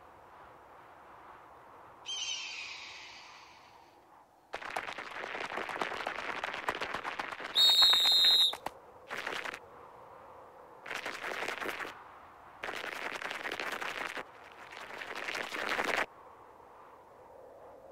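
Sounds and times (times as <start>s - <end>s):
high squeaky call: 2.1s - 3.7s
chirping call with falling pitch: 2.1s - 3.8s.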